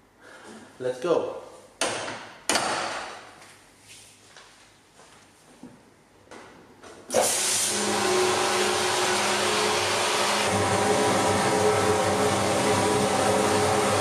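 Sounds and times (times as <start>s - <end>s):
loud hiss of blast spray: 7.1s - 14.0s
pump humming: 7.1s - 14.0s.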